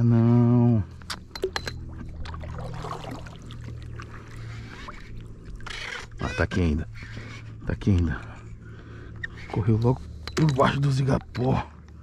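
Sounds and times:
faint steady hum: 6.9s - 12.0s.

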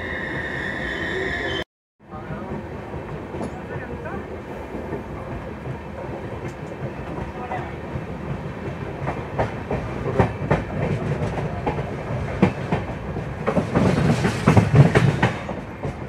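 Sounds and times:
low train rumble: 0.0s - 16.0s
train wheels clattering over rail joints: 9.0s - 16.0s.

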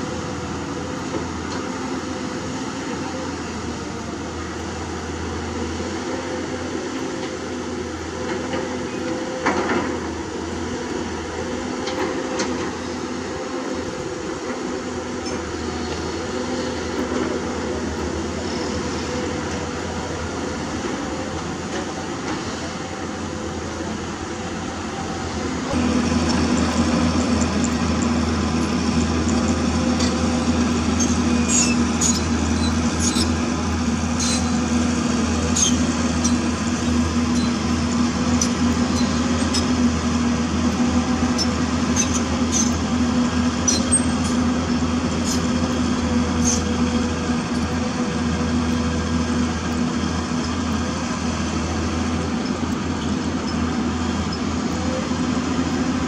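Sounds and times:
excavator diesel engine humming: 0.0s - 56.0s.

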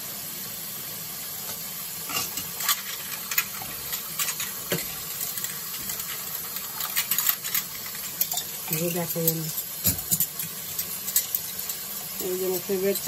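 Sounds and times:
cups and plates clinking: 2.1s - 13.0s
tap running into sink: 9.8s - 10.6s.

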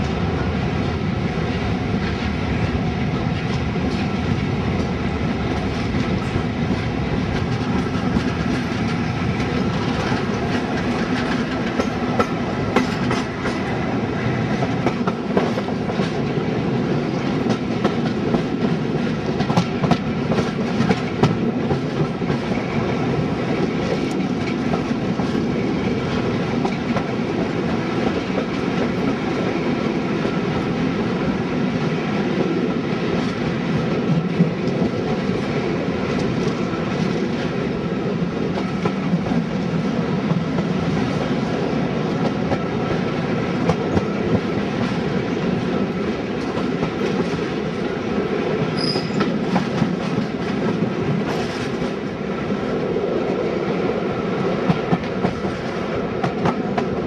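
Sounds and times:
train wheels rumbling: 0.0s - 57.0s
wheels clicking over rail joints: 4.8s - 13.7s
short high squeak: 48.8s - 49.3s.

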